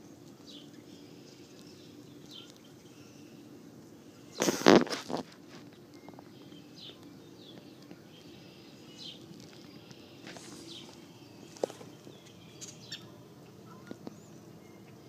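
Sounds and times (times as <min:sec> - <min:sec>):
faint steady hum: 0:00.0 - 0:15.0
high bird chirps: 0:06.0 - 0:15.0.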